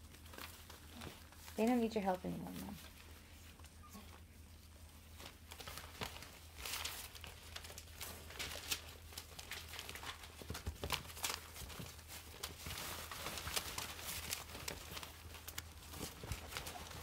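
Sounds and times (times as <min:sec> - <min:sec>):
low steady hum: 0:00.0 - 0:17.0
paper crinkling: 0:00.0 - 0:17.0
puppies scrambling and rustling: 0:00.0 - 0:17.0.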